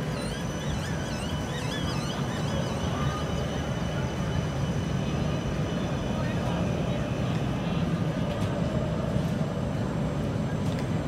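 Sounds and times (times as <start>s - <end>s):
wavering high-pitched tones: 0.0s - 7.0s
tram rolling past: 0.0s - 11.0s.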